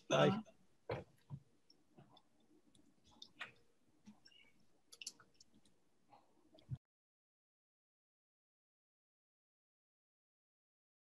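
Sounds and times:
faint clicks: 0:01.2 - 0:06.8.

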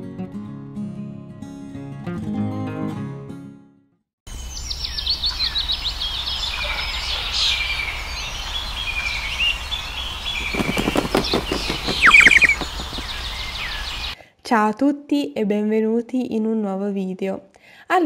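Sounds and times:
guitar music: 0:00.0 - 0:03.5
birds chirping: 0:04.4 - 0:14.2
rapid soft beats: 0:10.4 - 0:13.4.

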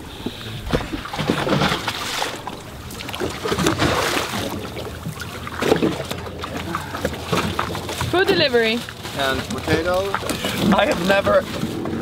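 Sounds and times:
water lapping against hull: 0:00.0 - 0:12.0
cans and bags rustling: 0:05.8 - 0:12.0.

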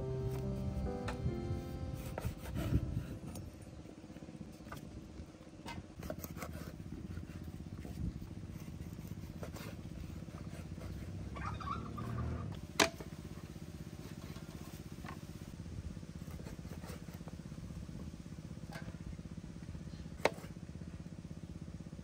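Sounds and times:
low motor hum: 0:00.0 - 0:22.0.

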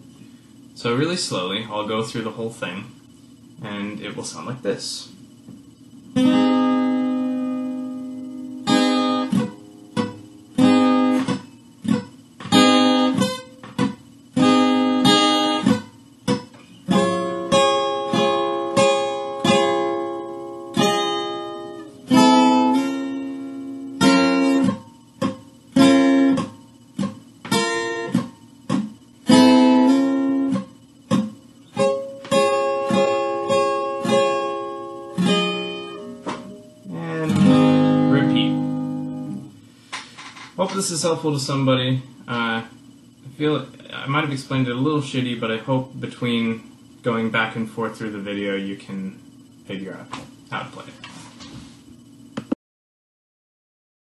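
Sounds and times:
acoustic guitar strumming: 0:05.8 - 0:42.6.

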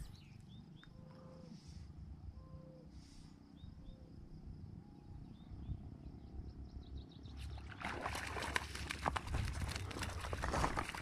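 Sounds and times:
faint bird chirps: 0:00.0 - 0:07.7
wind rumble on microphone: 0:03.6 - 0:11.0.

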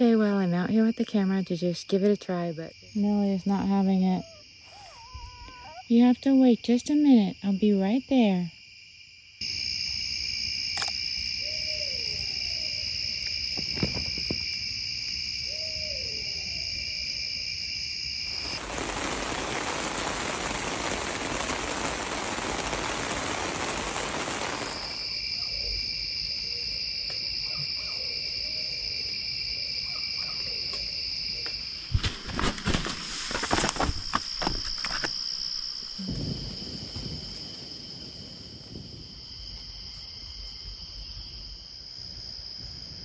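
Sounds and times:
insects trilling: 0:00.0 - 0:43.0
rushing hiss: 0:18.2 - 0:25.4.

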